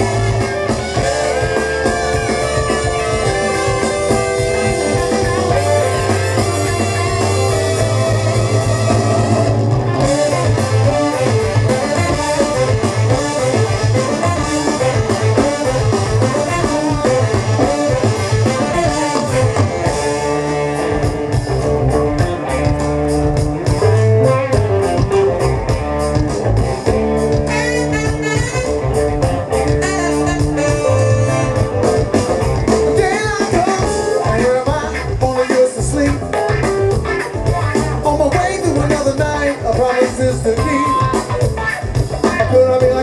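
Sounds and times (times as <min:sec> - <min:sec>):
trumpet: 0:00.0 - 0:20.8, 0:27.3 - 0:32.3
saxophone: 0:00.0 - 0:21.5, 0:26.7 - 0:34.6
drum kit: 0:00.0 - 0:43.0
electric guitar: 0:00.0 - 0:43.0
person singing: 0:32.9 - 0:36.4, 0:38.0 - 0:41.2.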